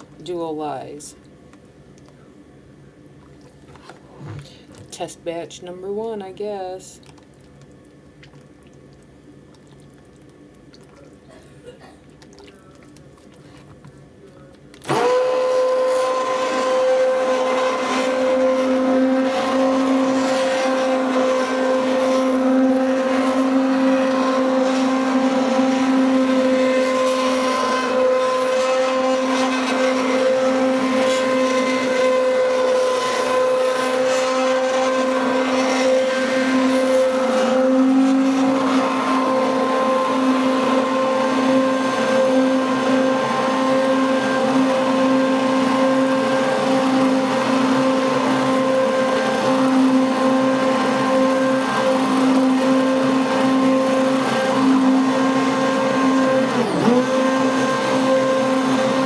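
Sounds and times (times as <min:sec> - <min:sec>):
stick blender motor whine: 0:14.8 - 0:59.0.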